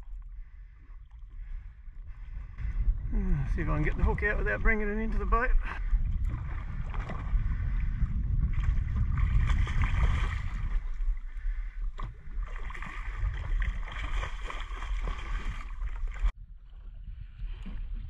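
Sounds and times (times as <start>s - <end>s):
steady low rumble: 0.0s - 14.5s
water splashing against boat: 0.0s - 18.0s.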